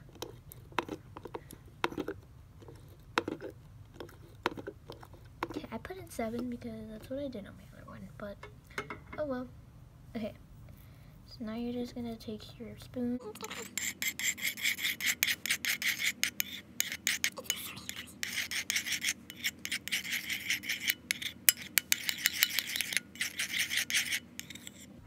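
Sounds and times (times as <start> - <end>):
metal spoon scraping ceramic bowl: 13.3 - 24.9.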